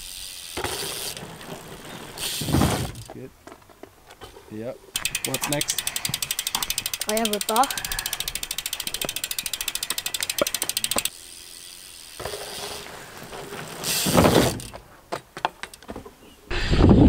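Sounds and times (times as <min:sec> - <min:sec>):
bike hub ratchet clicking: 0:00.0 - 0:01.4, 0:02.2 - 0:02.5, 0:04.9 - 0:12.9, 0:13.8 - 0:14.8.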